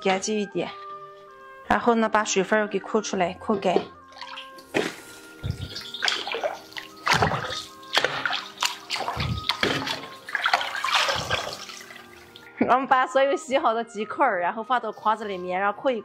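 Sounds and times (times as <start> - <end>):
water sloshing and splashing: 3.4 - 12.6
water dripping: 3.6 - 12.8.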